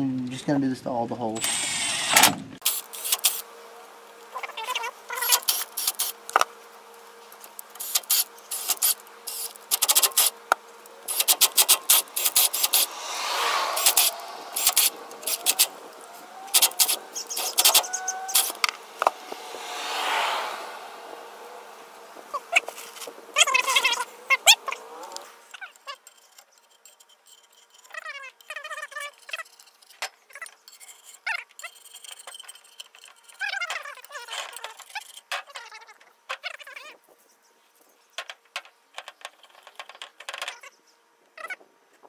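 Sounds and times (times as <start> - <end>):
tool clicks and clatter: 1.4 - 3.4, 7.4 - 10.4, 11.1 - 12.9, 13.8 - 19.1, 25.1 - 35.7, 38.2 - 40.6
longer swelling sounds: 12.2 - 22.4.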